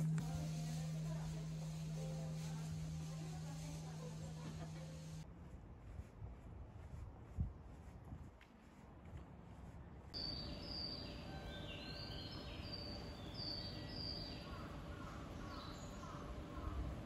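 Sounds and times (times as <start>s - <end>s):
steady hum: 0.0s - 5.2s.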